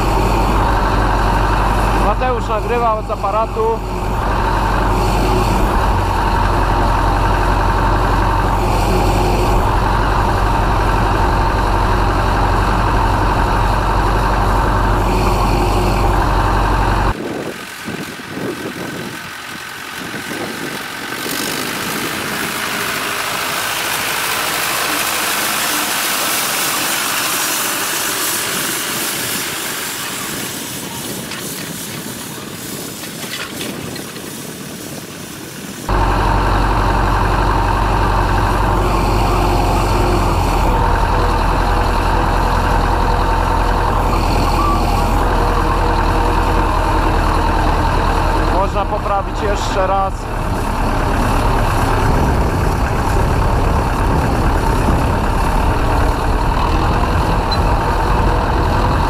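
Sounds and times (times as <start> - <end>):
diesel tractor engine running: 0.0 - 59.0
rushing hiss: 17.5 - 35.9.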